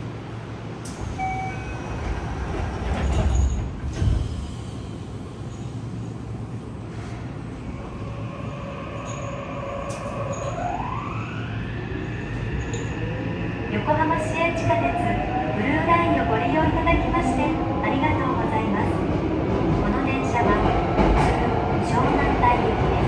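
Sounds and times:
train inverter tone rising: 0:07.7 - 0:15.8.

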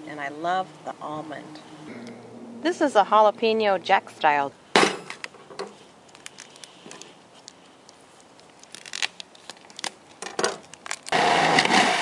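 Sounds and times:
food processor motor grinding: 0:11.1 - 0:12.0.

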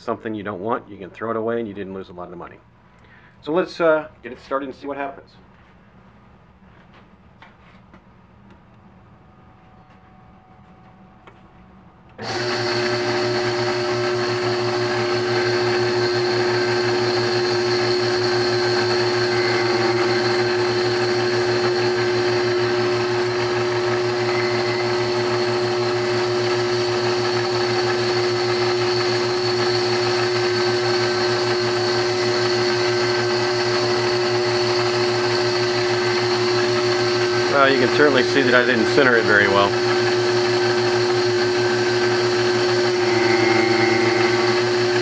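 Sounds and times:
drive motor humming: 0:12.1 - 0:45.0.

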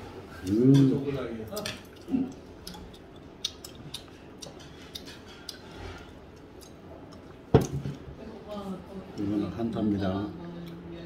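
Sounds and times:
chopsticks clicking against dishes: 0:01.5 - 0:07.3.

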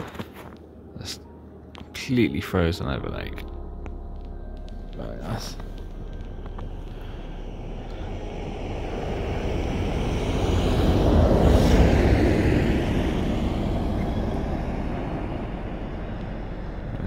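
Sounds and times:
car driving past on snow: 0:05.4 - 0:17.0.

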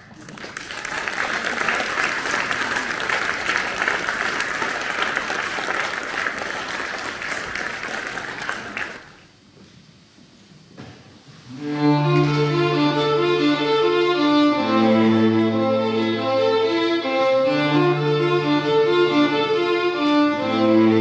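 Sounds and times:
audience applause: 0:00.0 - 0:09.3
string quartet playing: 0:11.5 - 0:21.0.

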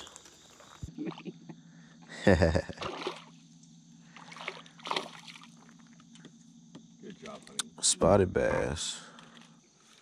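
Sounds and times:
steady low hum: 0:00.0 - 0:10.0
fish splashing at water surface: 0:02.8 - 0:03.4, 0:04.1 - 0:05.8.

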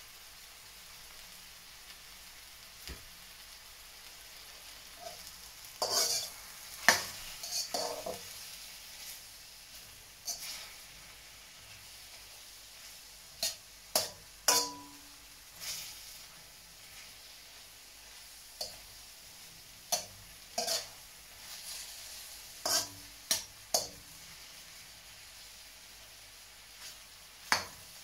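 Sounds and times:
beef sizzling in a wok: 0:00.0 - 0:28.0
metal spatula scraping a wok: 0:05.0 - 0:09.2, 0:10.2 - 0:10.9, 0:12.8 - 0:14.9, 0:15.5 - 0:17.2, 0:19.9 - 0:24.0.

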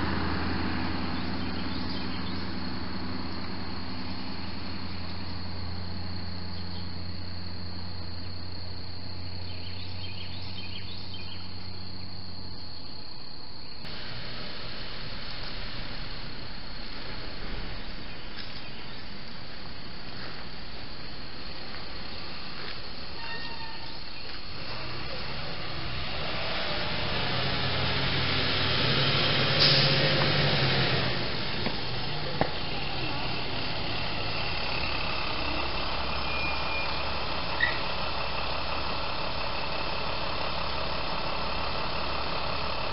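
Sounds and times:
steady hiss: 0:13.8 - 0:23.2.

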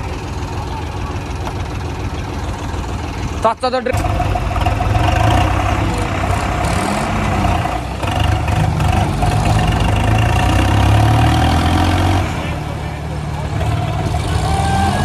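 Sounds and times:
tractor engines rumbling: 0:00.0 - 0:15.0.

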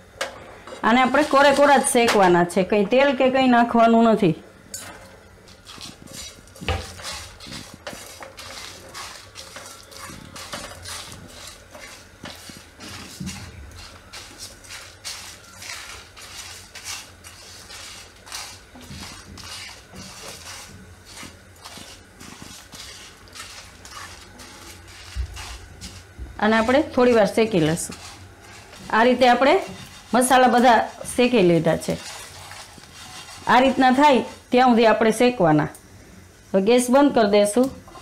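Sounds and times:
spatula stirring in a pan: 0:00.1 - 0:02.4, 0:04.7 - 0:35.3, 0:37.8 - 0:38.0
spices rattling in a dry pan: 0:05.5 - 0:34.6.

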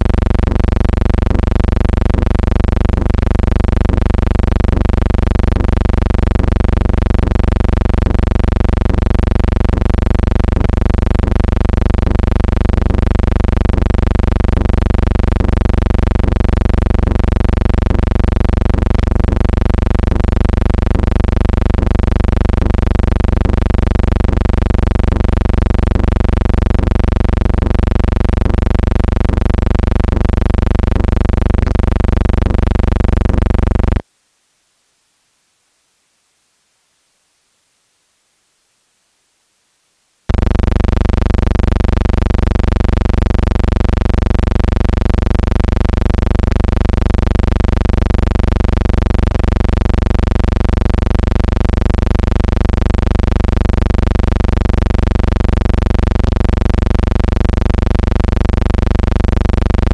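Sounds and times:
loud electrical hum: 0:00.0 - 0:34.0, 0:40.3 - 0:59.9.

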